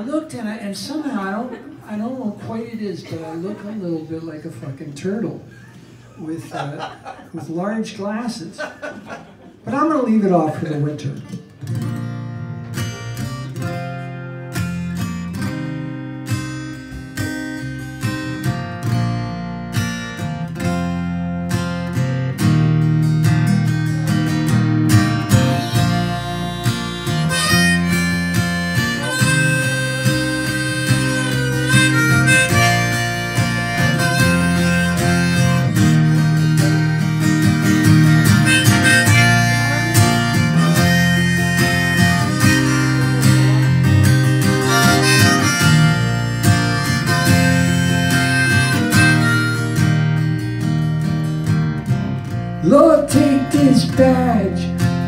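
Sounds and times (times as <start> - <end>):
acoustic guitar strumming: 11.4 - 55.0
electric bass: 11.8 - 55.0
harmonica: 12.8 - 15.7, 23.7 - 50.8.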